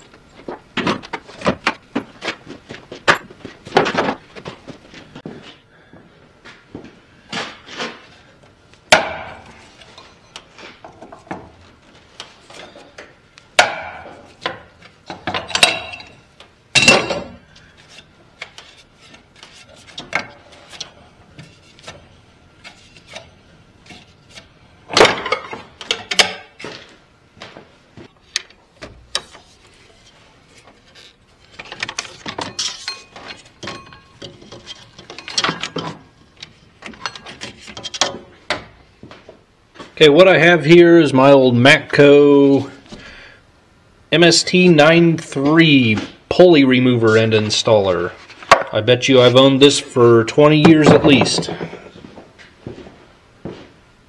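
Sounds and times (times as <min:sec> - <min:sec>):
hand tools knocking and clanking: 0:12.5 - 0:17.4, 0:24.9 - 0:26.7, 0:31.6 - 0:38.8, 0:50.6 - 0:51.8.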